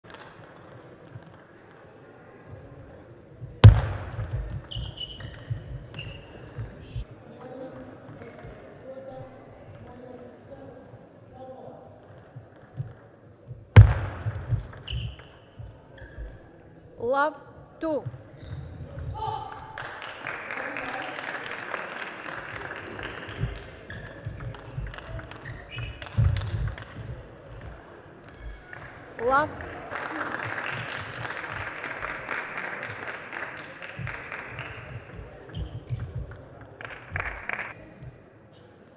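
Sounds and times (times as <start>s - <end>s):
footwork thuds: 3.4s - 4.9s, 13.5s - 16.3s
loud sharp knock: 3.6s - 4.6s, 13.8s - 14.6s
ball and feet knocking: 3.6s - 7.0s, 12.4s - 16.4s, 23.4s - 27.8s
shoe squeaks on floor: 4.1s - 7.0s, 14.1s - 16.5s, 18.3s - 19.2s, 23.9s - 26.5s, 27.7s - 28.7s, 35.5s - 36.1s.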